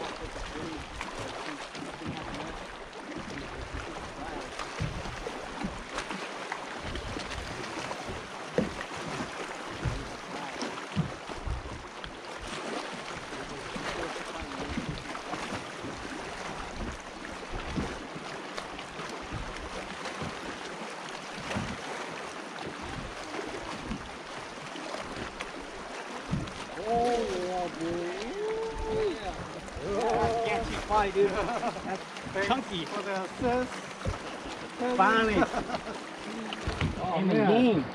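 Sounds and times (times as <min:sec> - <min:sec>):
water lapping against hull: 0:00.0 - 0:37.9
low thumps: 0:36.6 - 0:37.1.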